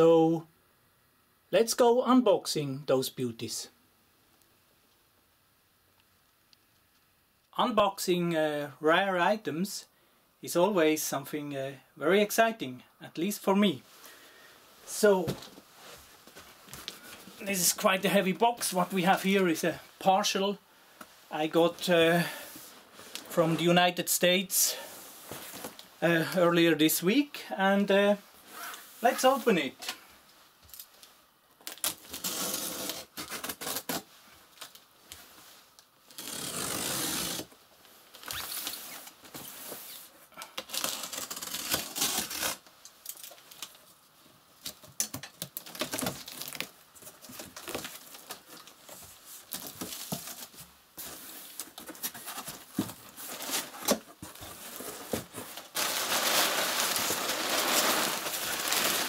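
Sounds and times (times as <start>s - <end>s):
tape tearing: 31.6s - 34.8s, 36.1s - 37.6s, 38.2s - 43.8s, 44.6s - 48.7s, 49.4s - 59.0s
box cutter slitting tape: 31.8s - 34.0s, 36.1s - 37.5s, 40.7s - 42.6s.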